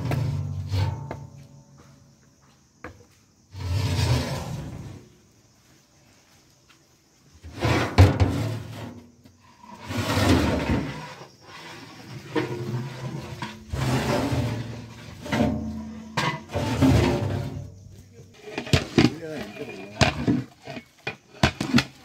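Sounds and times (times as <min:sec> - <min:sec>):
pot lids scraping and knocking: 0:09.7 - 0:17.7, 0:18.3 - 0:22.0.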